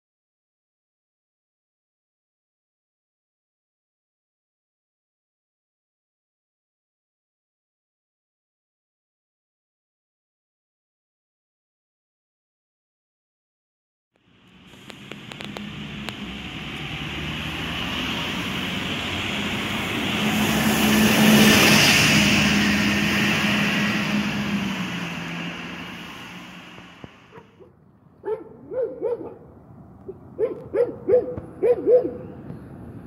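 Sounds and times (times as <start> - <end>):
bus driving past: 14.2 - 33.0
dog barking: 27.3 - 29.5, 30.1 - 32.3.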